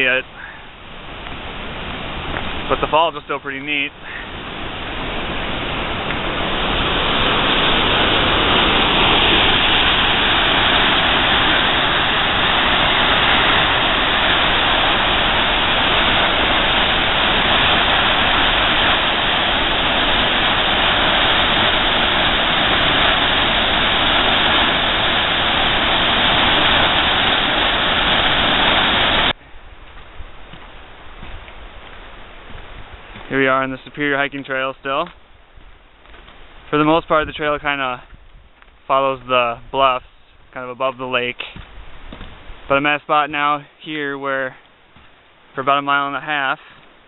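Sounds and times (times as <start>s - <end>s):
waterfall rushing: 0.0s - 29.4s.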